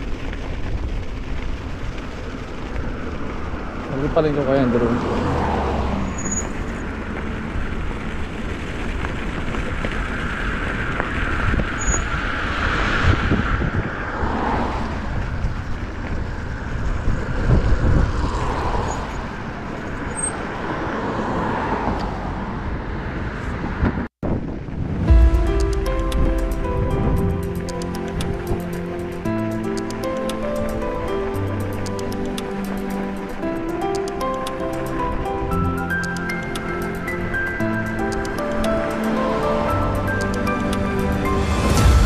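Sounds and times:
cars passing: 0.0s - 42.0s
low traffic rumble: 0.0s - 42.0s
music: 25.0s - 42.0s.

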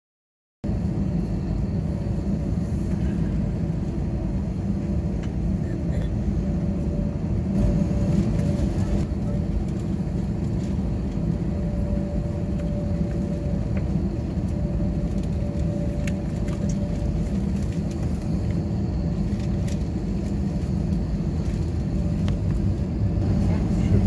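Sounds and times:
aircraft cabin engine rumble: 0.6s - 24.0s.

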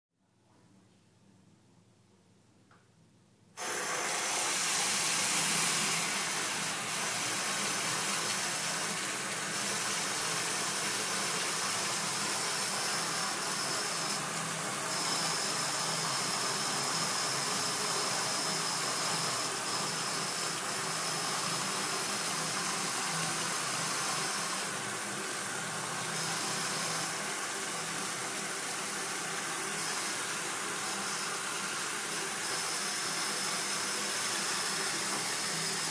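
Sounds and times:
water running into basin: 4.1s - 13.5s.

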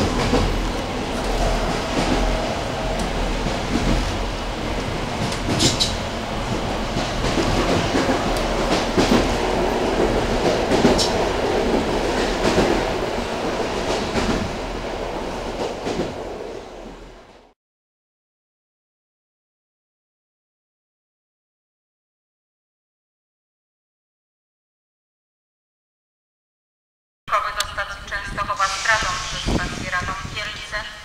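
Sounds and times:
train rumble inside carriage: 0.0s - 17.5s, 27.3s - 31.0s.

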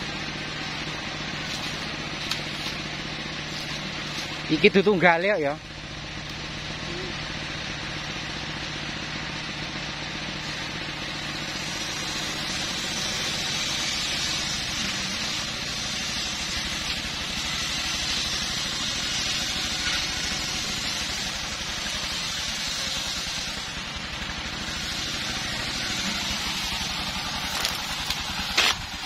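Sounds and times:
chainsaw idling: 0.0s - 29.0s.

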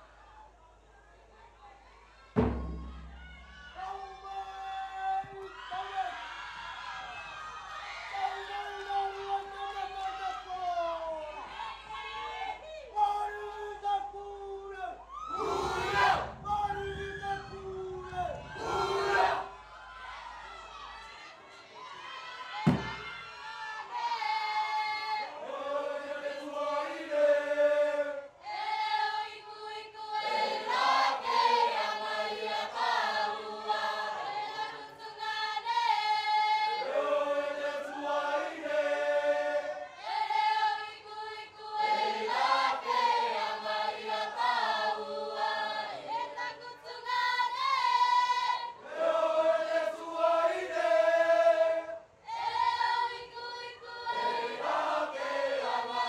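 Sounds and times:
mixed choir singing in harmony: 15.3s - 56.0s.

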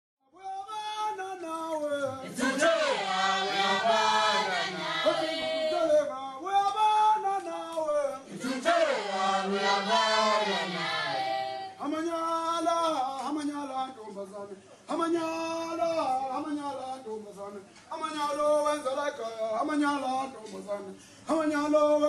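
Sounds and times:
choir singing a chant-like song: 2.1s - 6.1s, 8.2s - 11.8s.

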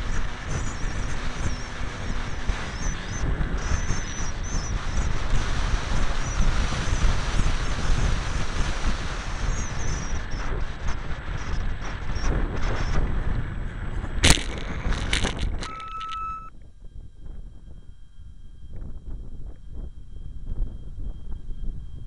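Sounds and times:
high motor whine: 0.0s - 22.0s
wind buffeting camera: 0.0s - 22.0s
short steady tone: 15.6s - 16.5s.

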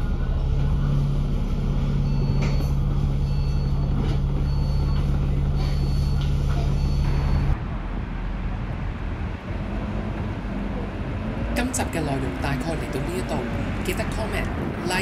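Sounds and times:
bus diesel engine humming: 0.0s - 15.0s
electronic warning beeps: 2.0s - 7.6s.

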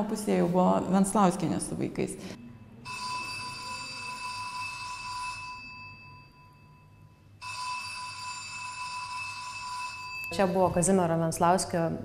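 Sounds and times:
telephone bell ringing: 2.8s - 10.6s.

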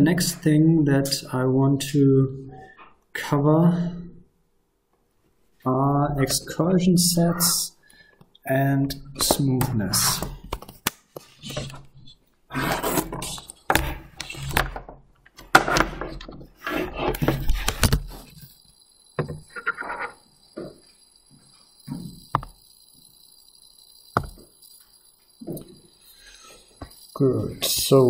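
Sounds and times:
thumps and clicks: 9.2s - 18.6s, 19.2s - 22.6s, 24.2s - 25.8s
faint high whine: 15.6s - 28.0s.

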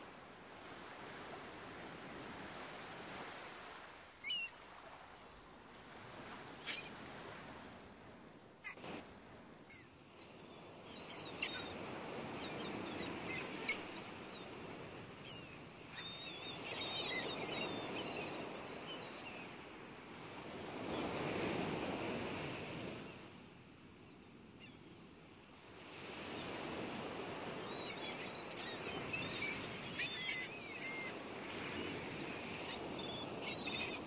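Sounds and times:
waves washing in and out: 0.0s - 34.0s.

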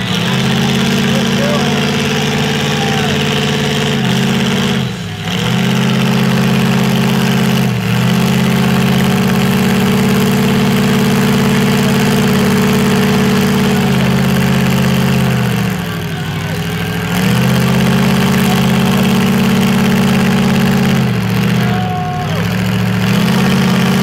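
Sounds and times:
truck engine running loud: 0.0s - 24.0s.

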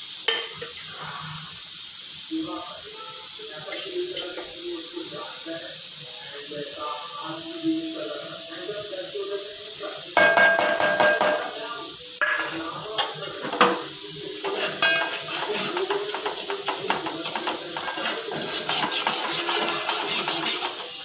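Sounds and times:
oil sizzling: 0.0s - 21.0s
metal ladle scraping a pot: 14.4s - 21.0s.

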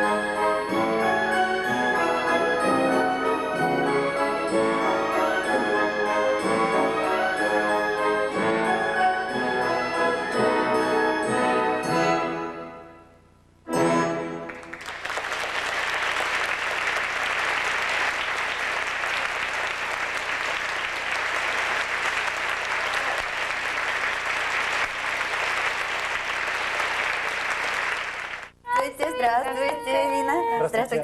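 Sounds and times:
orchestral chord: 0.0s - 13.1s
audience applauding: 14.5s - 30.4s.

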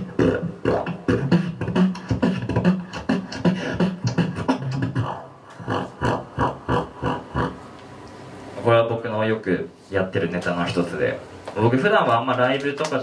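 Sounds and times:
beatboxing into microphone: 0.0s - 7.7s.

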